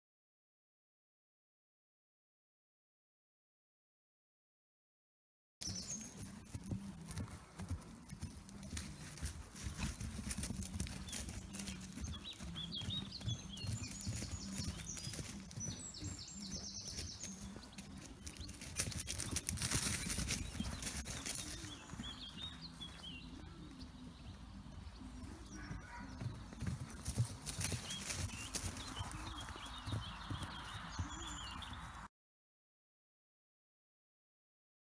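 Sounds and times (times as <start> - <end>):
hoofbeats on grass: 5.6 - 32.1.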